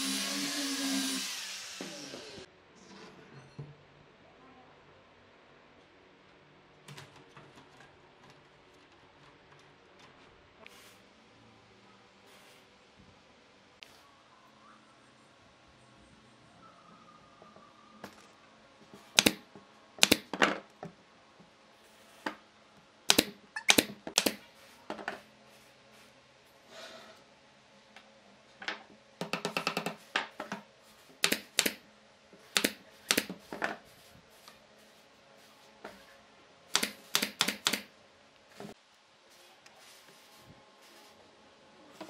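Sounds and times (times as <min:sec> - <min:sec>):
nail gun firing into wood: 0:19.2 - 0:19.4, 0:20.0 - 0:20.3, 0:36.7 - 0:37.9.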